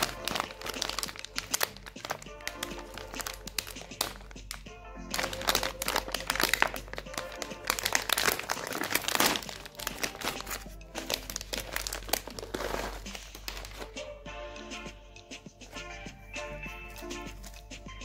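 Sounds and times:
snack bag crinkling: 0.0 - 14.1
background music: 0.0 - 18.0.

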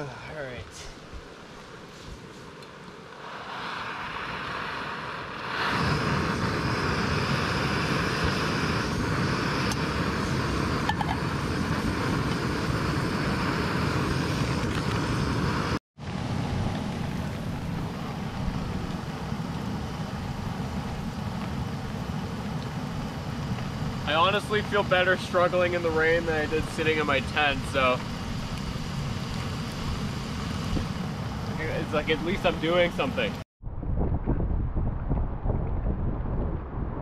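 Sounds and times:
rain: 16.0 - 26.2
low rumble on microphone: 25.5 - 37.0.

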